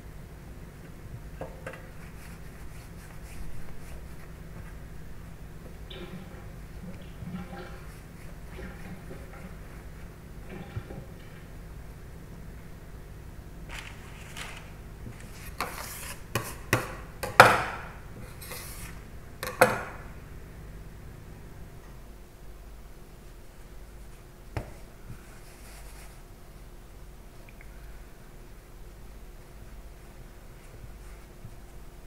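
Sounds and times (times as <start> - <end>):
steady low hum: 0.0 - 32.0
soft rubbing of dough: 1.0 - 5.6, 7.4 - 10.3, 13.7 - 16.7, 18.2 - 19.1, 23.3 - 26.8, 28.4 - 32.0
sharp knocks on kitchen bench: 16.7 - 17.9.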